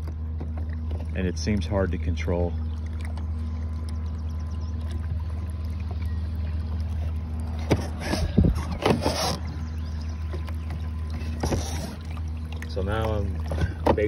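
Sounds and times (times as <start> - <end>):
electric boat motor humming: 0.0 - 14.0
knocks and scrapes: 7.6 - 9.5, 11.4 - 12.0.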